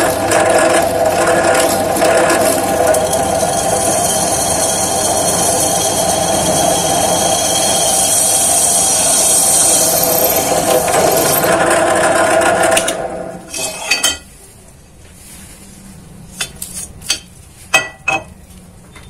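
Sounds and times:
drill press cutting metal tube: 0.0 - 14.2.

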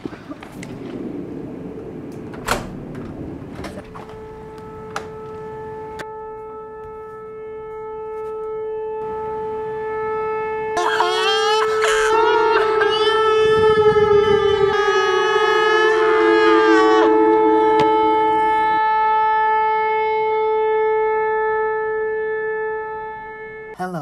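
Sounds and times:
outdoor background noise: 0.0 - 13.6
steady horn-like tone: 3.7 - 23.8
wailing voice-like sound: 10.8 - 18.8.

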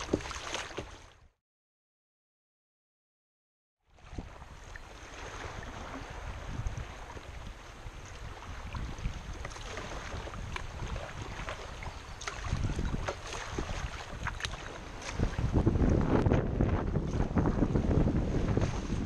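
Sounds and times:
small water splashes and drips: 0.0 - 1.2, 8.7 - 15.4
river water lapping around a kayak: 0.0 - 1.4, 3.8 - 19.0
wind rumbling on microphone: 4.0 - 19.0.

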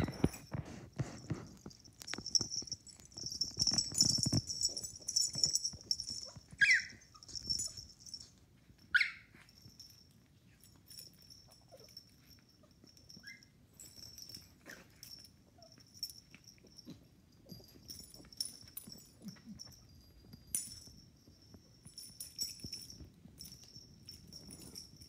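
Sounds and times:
puppy yelping: 6.1 - 7.8, 8.9 - 9.4.

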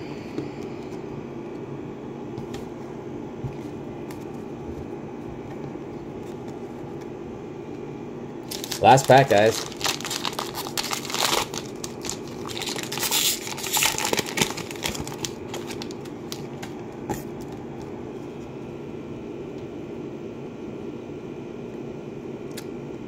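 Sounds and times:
faint steady hum: 0.0 - 23.0
foil wrapper tearing and crinkling: 8.4 - 16.5.

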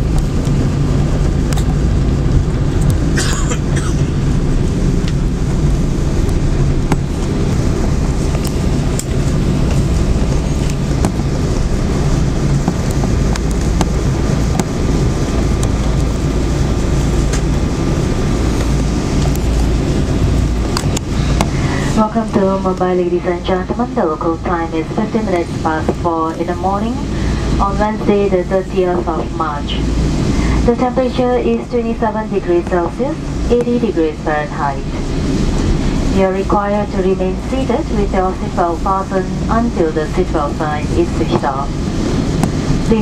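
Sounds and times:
low rumble of engines and landing gear: 0.0 - 43.0.

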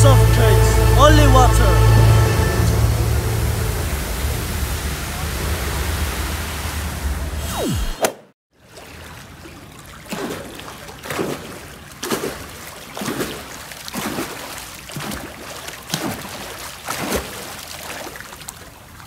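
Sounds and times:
swimmer's arm strokes splashing: 7.4 - 18.8
lapping water: 8.7 - 19.0.

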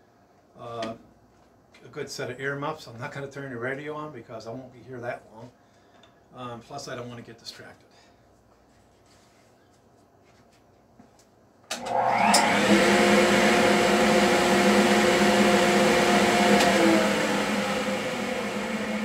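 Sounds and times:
dust collector air rush: 11.8 - 19.0.

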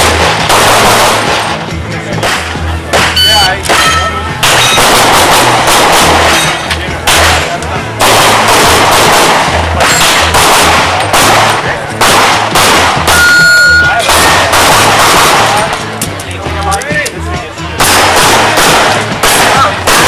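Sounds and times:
rapid pistol fire: 0.0 - 1.6, 4.4 - 13.3, 13.9 - 15.8, 17.8 - 20.0.

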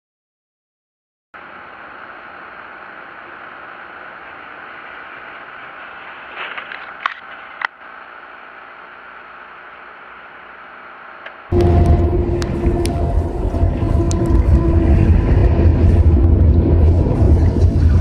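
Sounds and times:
car road and engine noise: 1.4 - 18.0.

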